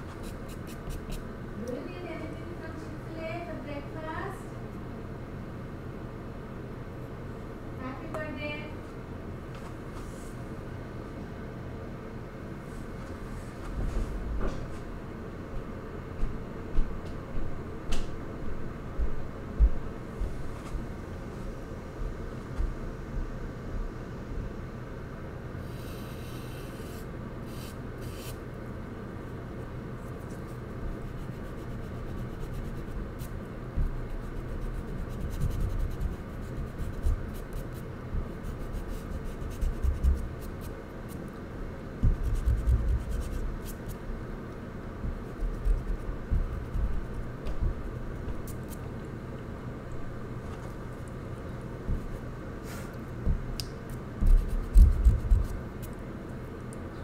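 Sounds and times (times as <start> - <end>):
charcoal scratching on paper: 0.0 - 1.2, 30.1 - 41.2, 42.1 - 44.0, 45.2 - 47.2, 54.2 - 56.0.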